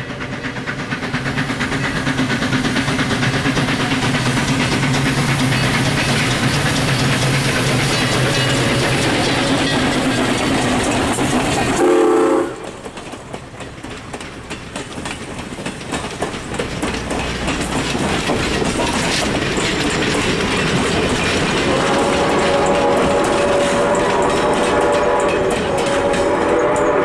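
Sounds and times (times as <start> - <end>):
steam locomotive working: 0.0 - 27.0
wheels clicking over rail joints: 0.0 - 27.0
steam whistle blast: 11.8 - 12.6, 21.7 - 27.0.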